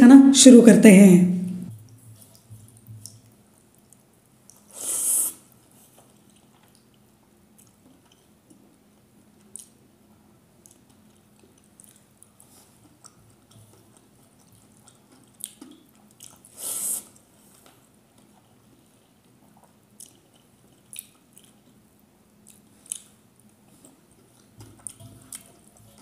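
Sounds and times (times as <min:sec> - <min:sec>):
faint eating clicks: 0:05.6 - 0:08.8, 0:09.4 - 0:26.0.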